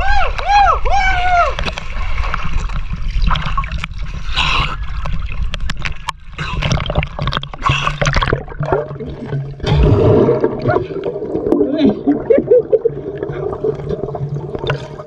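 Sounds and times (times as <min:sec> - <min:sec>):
water splashing: 0:00.0 - 0:15.0
underwater gurgle: 0:01.6 - 0:15.0.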